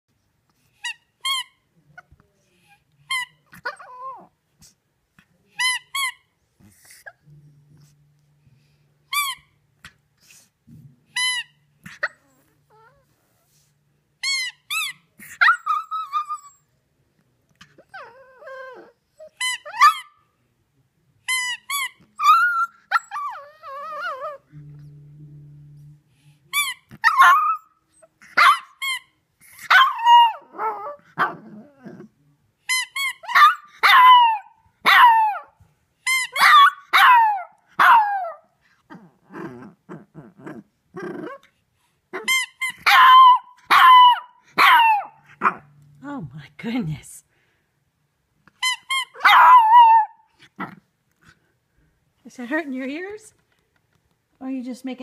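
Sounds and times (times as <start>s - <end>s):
puppy whimpering: 3.2s - 4.3s, 11.2s - 13.1s, 14.2s - 16.7s, 17.6s - 20.1s, 21.5s - 24.9s
puppy howling: 22.2s - 24.9s, 27.0s - 27.7s, 29.7s - 32.1s, 33.2s - 35.5s, 36.2s - 41.4s, 42.2s - 45.7s, 49.0s - 50.3s.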